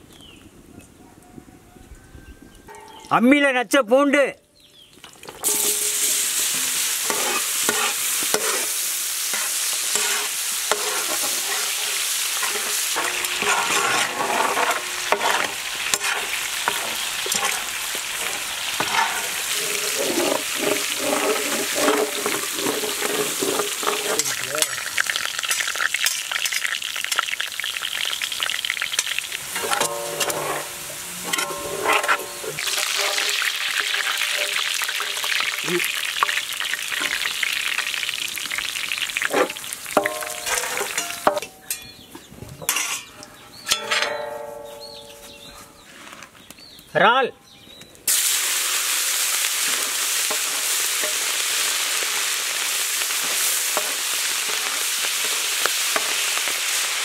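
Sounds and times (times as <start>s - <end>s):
garlic sizzling in oil: 4.8s - 41.8s, 48.1s - 57.0s
metal ladle scraping a pan: 5.4s - 27.2s, 29.0s - 37.9s, 39.2s - 41.9s, 42.6s - 45.0s, 49.5s - 56.8s.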